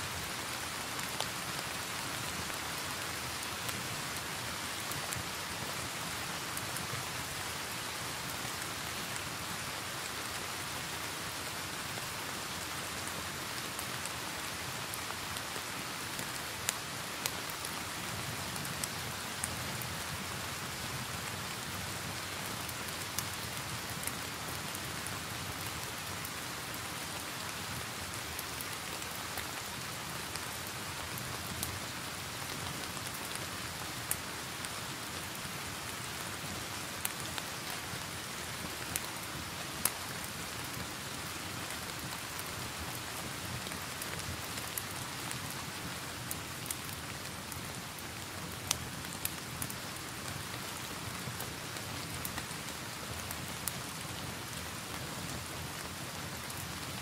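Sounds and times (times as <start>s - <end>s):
steady rain: 0.0s - 57.0s
wood fire crackling and popping: 36.1s - 37.7s, 38.5s - 39.1s, 39.8s - 56.9s.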